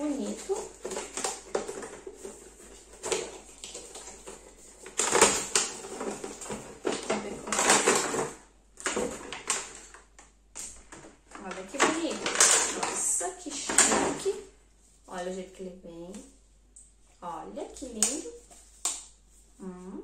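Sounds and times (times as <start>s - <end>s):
packaging crinkling and rustling: 0.0s - 14.4s.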